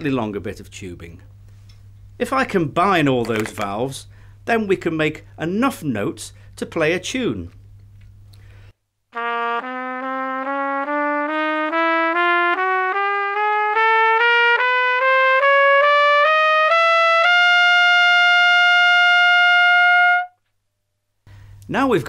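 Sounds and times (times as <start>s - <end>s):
plastic trumpet playing rising notes: 9.1s - 20.4s.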